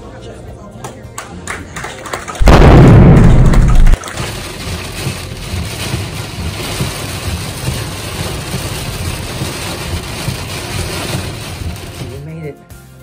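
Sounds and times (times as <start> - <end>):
heavy rain on car windshield: 3.0 - 12.2
car rumbling on wet road: 3.1 - 12.1.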